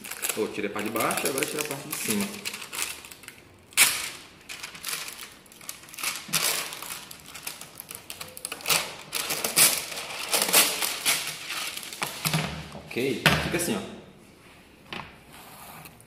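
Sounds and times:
plastic film rustling and crinkling: 0.0s - 12.7s.

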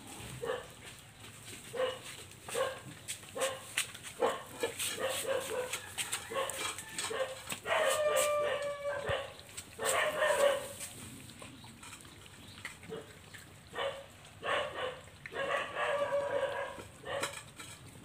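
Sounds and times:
wet chewing and lapping: 0.1s - 18.0s
puppies yipping and squealing: 3.4s - 17.4s.

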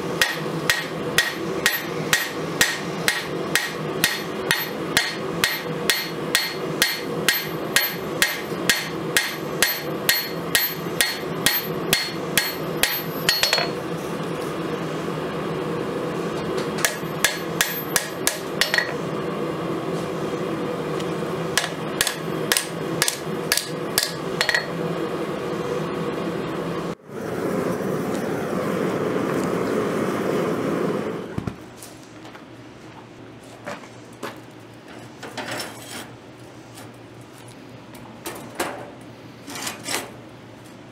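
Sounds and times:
hammer ringing on anvil: 0.2s - 13.8s, 21.6s - 24.8s.

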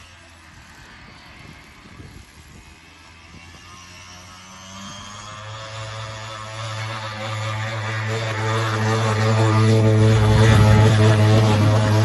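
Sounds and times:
model boat engine buzzing: 0.0s - 12.0s.

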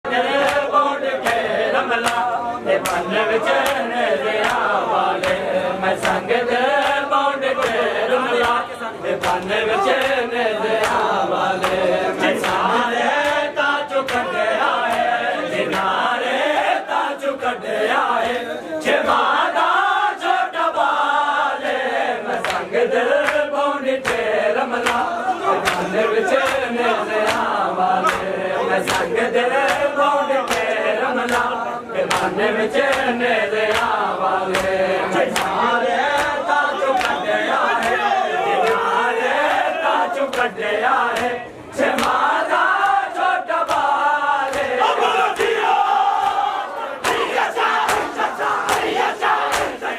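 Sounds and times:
crowd of men chanting: 0.0s - 49.9s
hands slapping chests: 2.0s - 3.8s, 47.0s - 49.8s.

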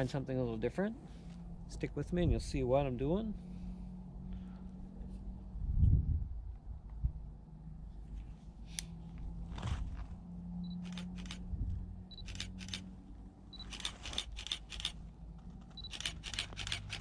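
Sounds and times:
camera shutter clicks: 10.8s - 11.4s, 12.1s - 12.9s, 13.6s - 15.0s, 15.8s - 17.0s
camera focus beep: 12.1s - 12.4s, 13.5s - 13.9s, 15.8s - 16.1s.

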